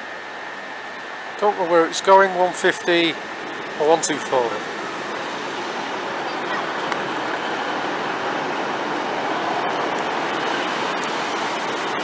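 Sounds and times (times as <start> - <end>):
train running past: 0.0 - 12.0.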